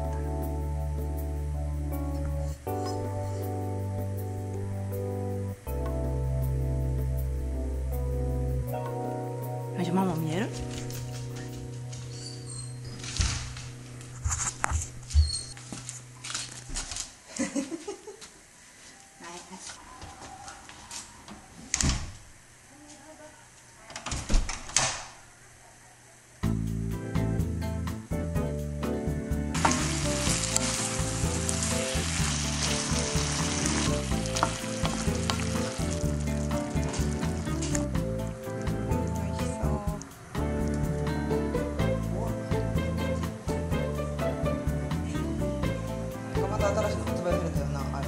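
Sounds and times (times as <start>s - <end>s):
food sizzling in a frying pan: 29.6s - 39.1s.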